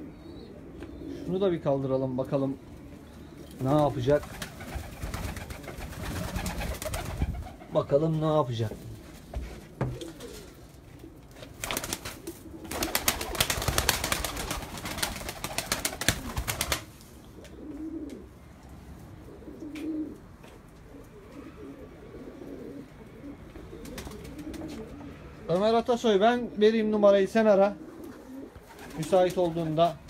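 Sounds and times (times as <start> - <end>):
pigeons cooing: 0.0 - 8.0, 9.6 - 25.7, 26.4 - 30.0
pigeon wings flapping: 4.2 - 7.6, 11.5 - 16.9, 23.8 - 24.8, 28.6 - 29.8.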